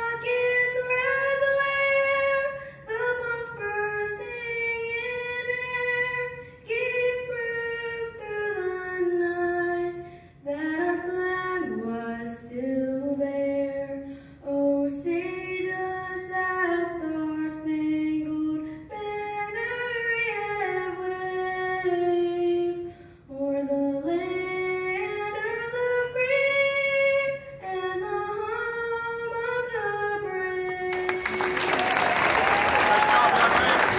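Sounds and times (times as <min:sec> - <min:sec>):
woman singing into microphone: 0:00.0 - 0:31.6
applause: 0:30.9 - 0:33.9.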